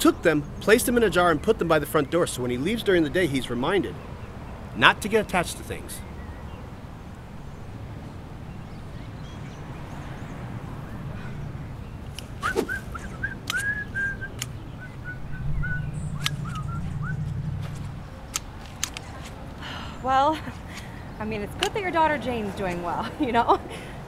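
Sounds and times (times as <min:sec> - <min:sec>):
hedge shears snipping: 0:12.1 - 0:14.6, 0:16.2 - 0:19.5
person whistling: 0:12.4 - 0:17.2.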